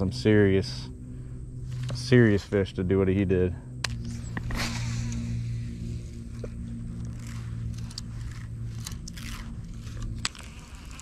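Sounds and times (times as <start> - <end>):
steady low hum: 0.0 - 11.0
fishing reel clicks and scrapes: 4.0 - 11.0.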